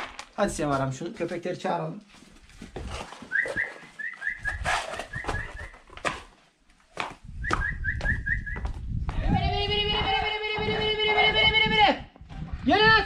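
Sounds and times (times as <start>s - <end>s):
short repeated whistles: 3.3s - 5.8s, 7.4s - 8.7s.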